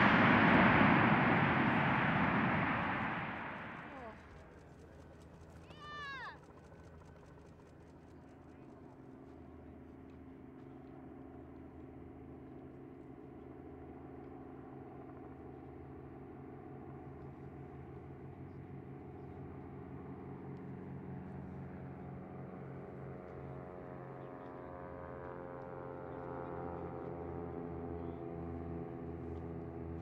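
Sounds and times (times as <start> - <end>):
jet engines whining at taxi: 0.0 - 4.3.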